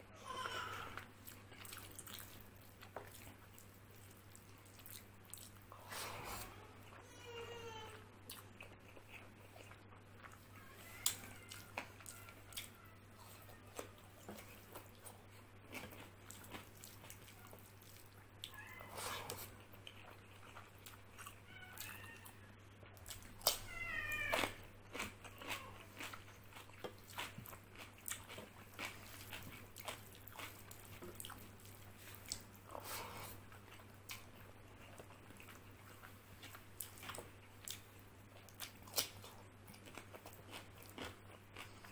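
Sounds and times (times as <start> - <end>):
chewing and wet mouth noises: 1.0 - 7.0, 8.2 - 41.9
crisp cucumber bites: 23.0 - 32.5.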